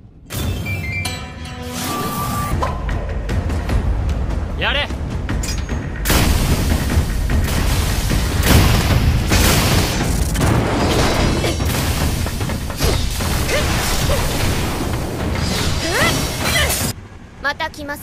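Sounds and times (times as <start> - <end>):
background music: 0.0 - 18.0
booming blasts and impacts: 2.6 - 17.0.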